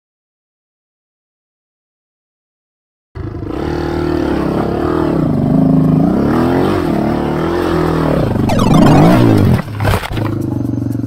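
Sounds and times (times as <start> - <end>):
dirt bike engine revving: 3.2 - 10.5.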